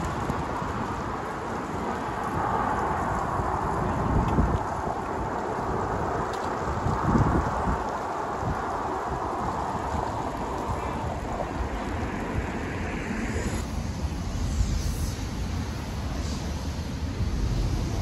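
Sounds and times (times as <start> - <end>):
car tyre noise passing: 0.0 - 18.0
road traffic: 0.0 - 18.0
wind buffeting microphone: 0.0 - 18.0.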